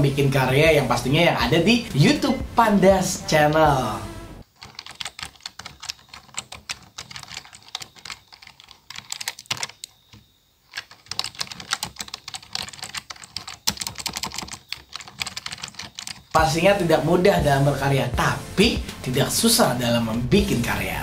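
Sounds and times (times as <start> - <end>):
fast typing on keyboard: 4.4 - 16.7.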